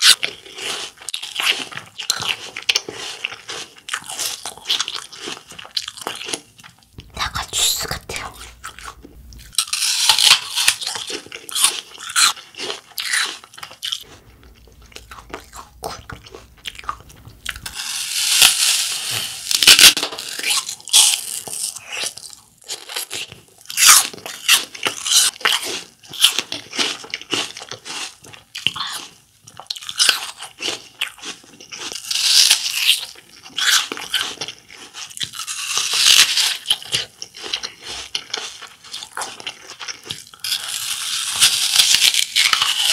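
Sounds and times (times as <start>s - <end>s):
biting into an apple: 0.0s - 42.9s
crisp chewing: 0.0s - 42.9s.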